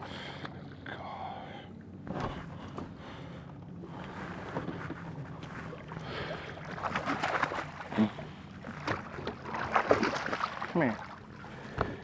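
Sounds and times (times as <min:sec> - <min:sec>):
steady low hum: 0:00.0 - 0:12.0
water slapping against boat hull: 0:06.6 - 0:12.0.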